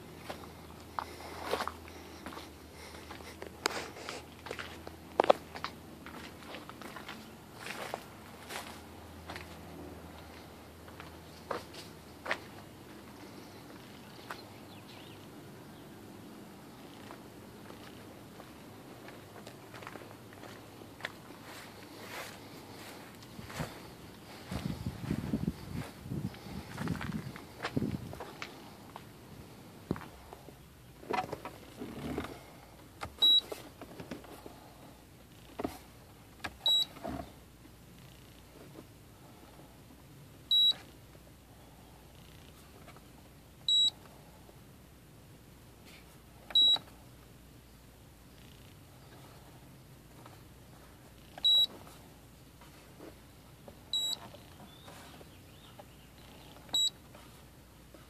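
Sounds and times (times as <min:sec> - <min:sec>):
short high beeps: 0:33.2 - 0:33.4, 0:36.6 - 0:36.9, 0:40.5 - 0:40.8, 0:54.0 - 0:54.2.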